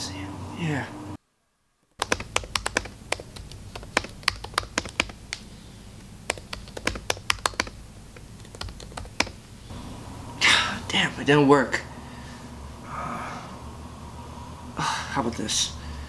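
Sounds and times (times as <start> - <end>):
laptop keyboard typing: 2.0 - 5.5, 6.2 - 9.4.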